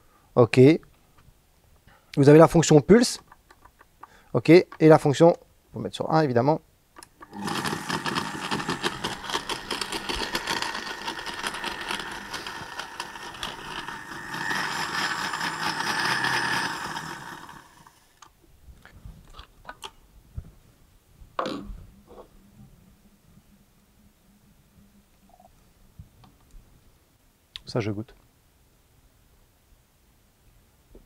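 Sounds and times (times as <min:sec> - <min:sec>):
blender mixing: 0:07.2 - 0:18.2.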